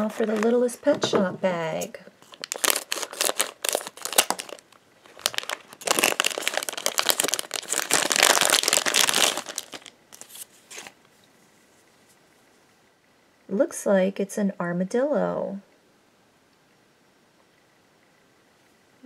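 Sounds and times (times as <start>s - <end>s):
foil packet crinkling: 0.0s - 0.7s, 2.2s - 11.0s.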